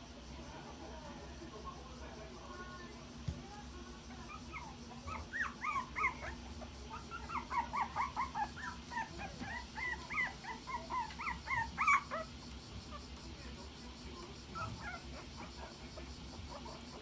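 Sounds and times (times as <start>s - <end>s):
puppies whimpering: 4.2s - 13.0s, 14.5s - 15.6s.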